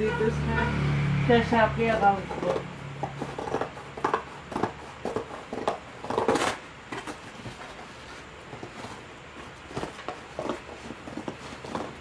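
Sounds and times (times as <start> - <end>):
books knocking and scraping: 2.2 - 12.0
plastic wrapping rustling: 4.8 - 12.0.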